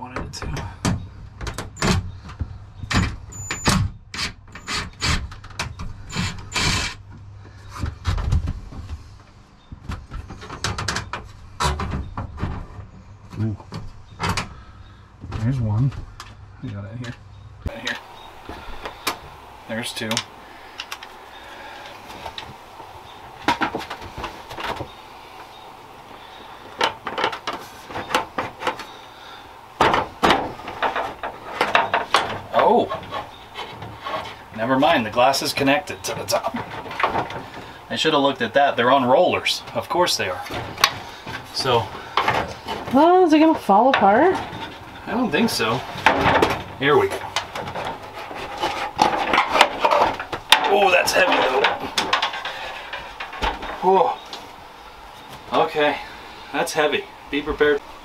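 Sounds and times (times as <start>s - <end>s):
clicks and knocks of metal: 26.3s - 29.0s, 29.8s - 34.4s, 45.9s - 54.4s.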